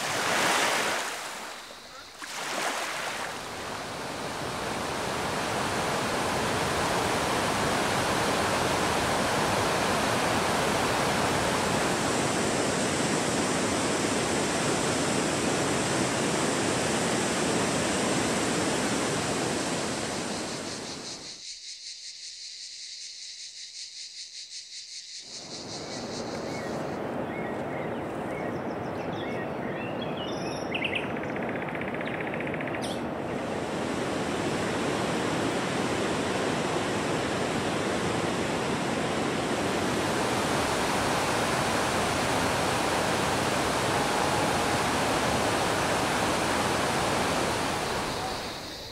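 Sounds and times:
waterfalls rushing: 0:00.0 - 0:20.3, 0:33.6 - 0:48.9.

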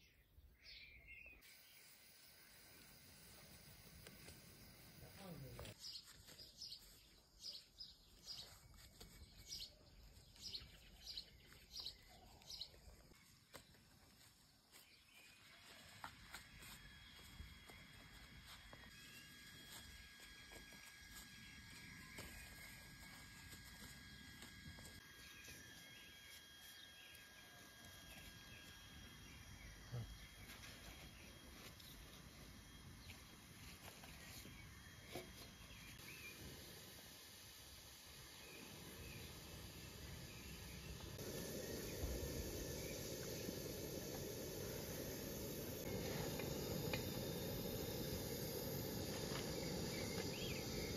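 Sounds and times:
thin high whine: 0:01.3 - 0:05.8, 0:15.4 - 0:50.9
faint bird chirps: 0:25.1 - 0:32.2, 0:38.3 - 0:50.9.

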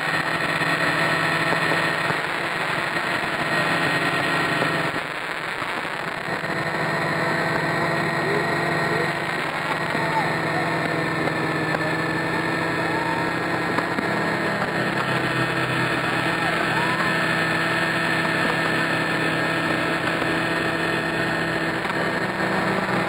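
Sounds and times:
fireworks hissing: 0:00.0 - 0:23.0
model helicopter rotor whine: 0:00.0 - 0:23.0.

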